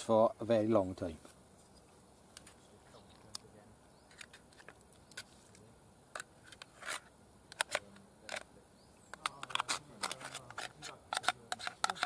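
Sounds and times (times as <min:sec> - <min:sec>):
tin lid scraping: 0:06.2 - 0:08.4, 0:09.2 - 0:12.0.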